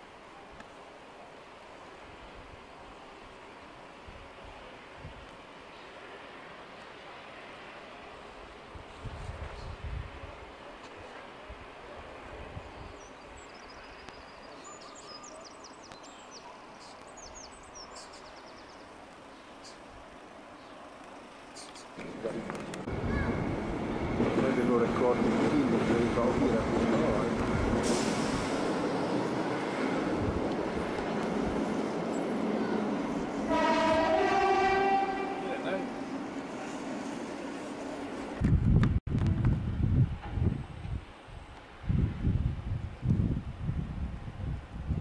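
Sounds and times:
outdoor background noise: 0:00.0 - 0:45.0
train running noise: 0:18.9 - 0:42.4
two-tone train horn: 0:33.4 - 0:36.0.

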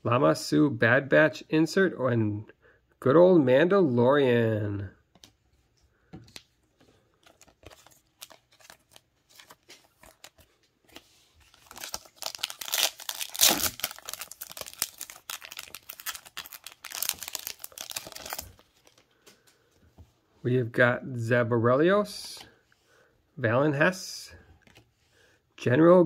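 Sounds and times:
card pack wrapper crinkling: 0:07.1 - 0:19.3
wrapper ripping: 0:07.2 - 0:10.4, 0:11.4 - 0:19.0.

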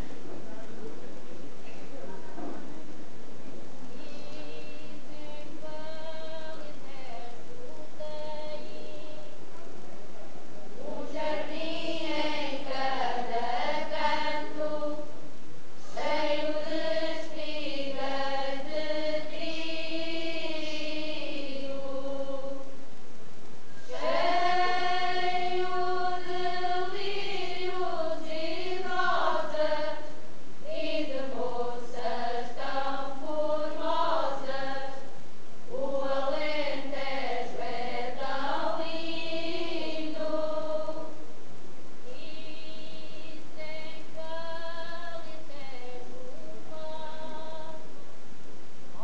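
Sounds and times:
women's choir singing: 0:03.8 - 0:09.4, 0:10.7 - 0:22.8, 0:23.8 - 0:41.2, 0:42.0 - 0:47.9.

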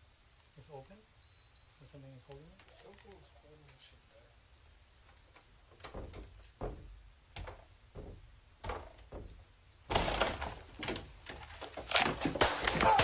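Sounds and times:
wooden door knocking against obstruction: 0:05.8 - 0:09.4.

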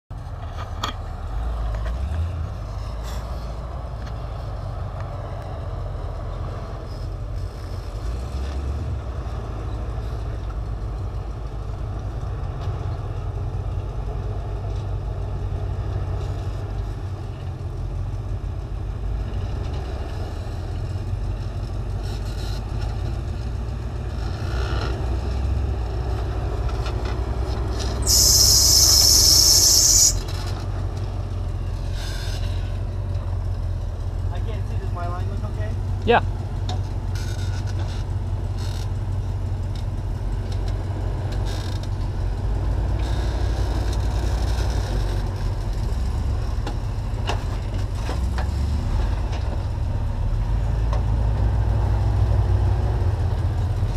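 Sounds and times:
truck engine rumbling low: 0:00.1 - 0:53.9
loud hiss: 0:28.0 - 0:30.2.

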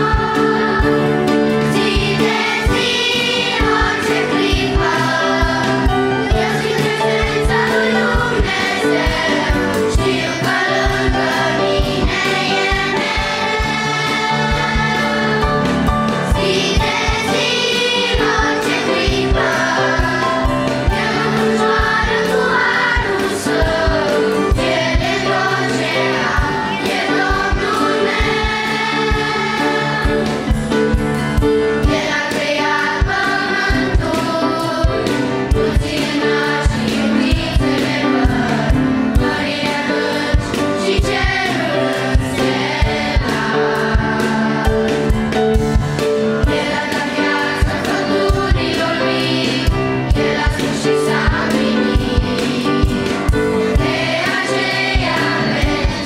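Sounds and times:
children's choir singing a hymn: 0:00.0 - 0:56.0
piano accompaniment: 0:00.0 - 0:56.0.

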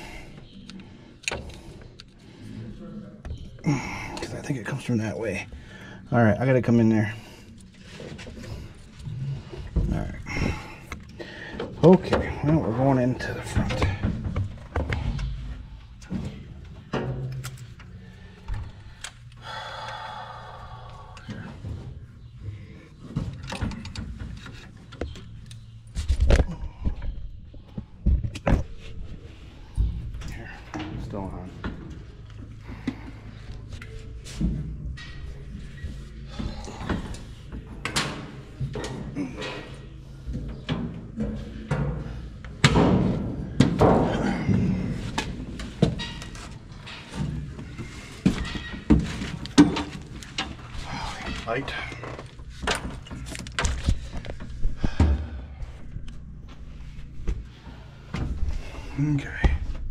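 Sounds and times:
clunks and knocks on metal: 0:13.4 - 0:17.6, 0:40.3 - 0:50.8.

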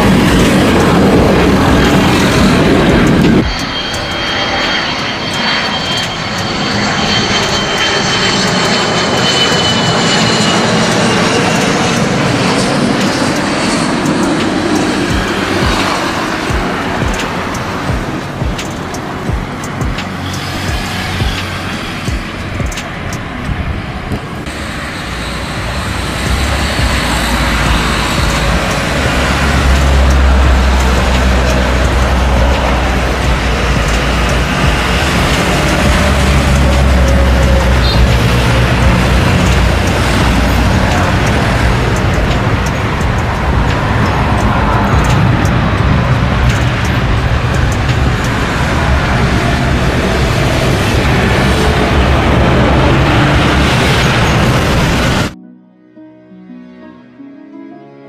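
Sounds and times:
faint high whine: 0:00.0 - 0:23.4
jet engine whine: 0:00.0 - 0:55.4
rush of jet noise: 0:00.0 - 0:55.4.

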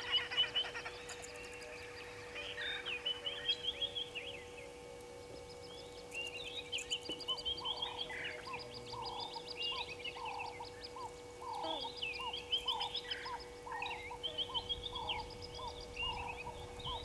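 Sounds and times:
repeating bird call: 0:00.0 - 0:04.0
faint steady hum: 0:00.0 - 0:17.0.

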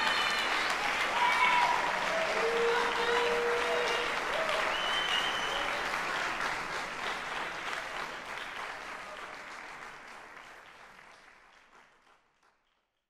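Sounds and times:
audience applauding: 0:00.0 - 0:12.9.

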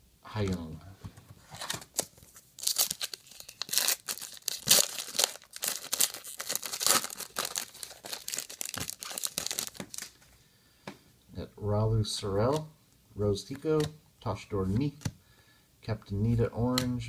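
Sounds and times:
foil wrapper crinkling and tearing: 0:01.9 - 0:10.2.

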